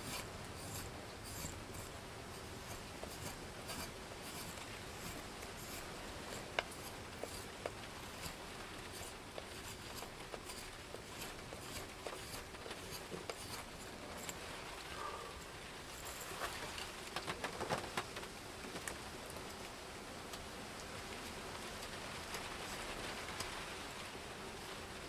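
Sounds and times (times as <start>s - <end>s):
knife scraping wood: 0.0s - 15.3s, 15.9s - 16.7s
steady hiss: 0.0s - 25.0s.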